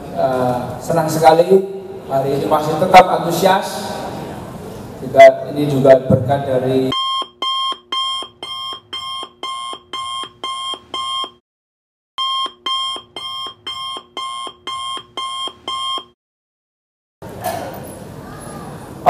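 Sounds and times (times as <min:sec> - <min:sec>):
alarm clock beeping: 0:07.0 - 0:11.4, 0:12.2 - 0:16.1.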